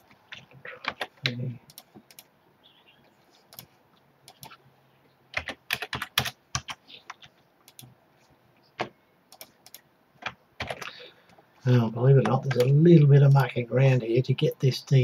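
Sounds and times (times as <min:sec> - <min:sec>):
computer keyboard typing: 0:00.3 - 0:02.3, 0:03.5 - 0:04.6, 0:05.3 - 0:08.0, 0:08.8 - 0:11.0, 0:12.2 - 0:13.5.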